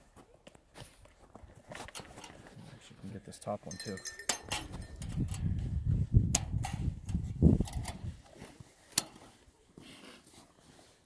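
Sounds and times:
sharp metal clicks: 0:03.9 - 0:05.5.

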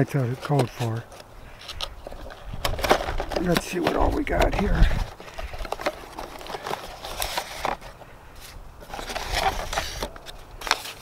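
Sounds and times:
cardboard and paper rustling: 0:00.0 - 0:11.0.

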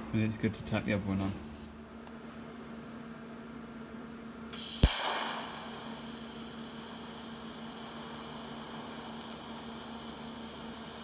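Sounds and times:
welding arc hissing and humming: 0:04.5 - 0:11.0.

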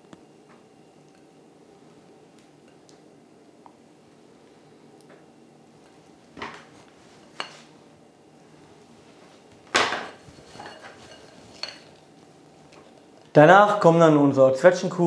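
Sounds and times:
kitchenware knocks and clinks: 0:09.7 - 0:11.9.

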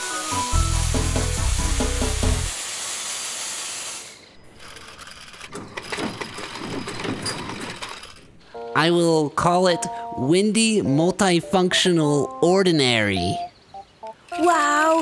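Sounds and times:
loud hiss: 0:00.0 - 0:04.4
tool clicks and clanks: 0:04.6 - 0:08.4.

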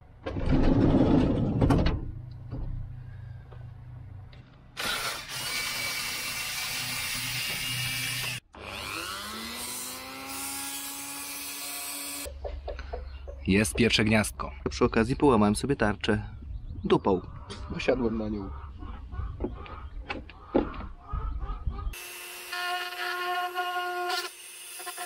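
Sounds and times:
power tool cutting: 0:04.8 - 0:12.3, 0:22.0 - 0:25.0.

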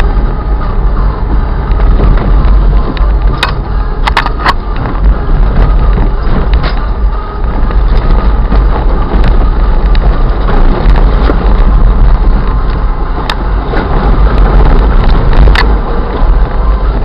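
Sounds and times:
vehicle engine and road noise: 0:00.0 - 0:17.0.

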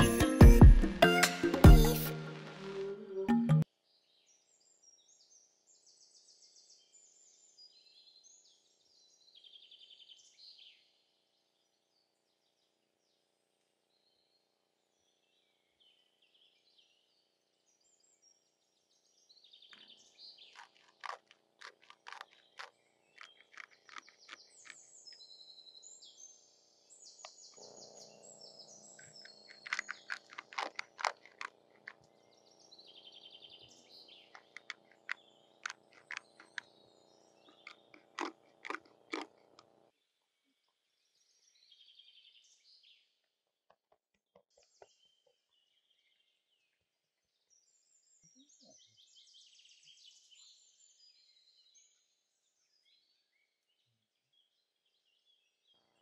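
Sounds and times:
birds chirping: 0:19.6 - 0:39.9
food crunching and clicking: 0:19.7 - 0:25.2, 0:29.0 - 0:32.4, 0:33.9 - 0:36.8, 0:37.4 - 0:39.8.

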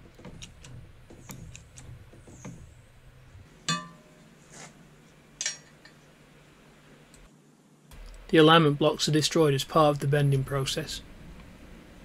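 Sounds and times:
steel plate clinking on metal frame: 0:03.7 - 0:04.2.

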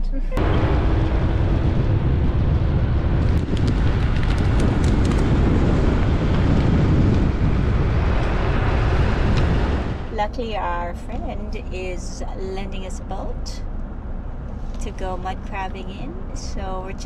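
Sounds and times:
car driving on dirt road: 0:00.1 - 0:10.6.

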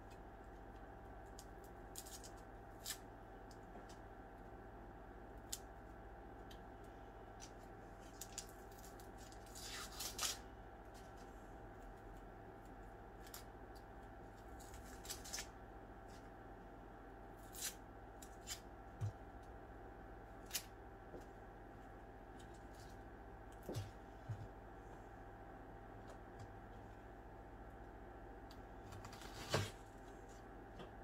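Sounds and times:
onion skin crackling and rustling: 0:01.2 - 0:04.0, 0:07.3 - 0:12.3, 0:13.1 - 0:16.3.

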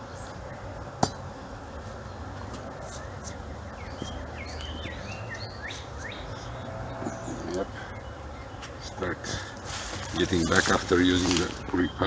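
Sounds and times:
honeybees buzzing: 0:00.0 - 0:12.0
small bird chirping: 0:02.9 - 0:08.8.

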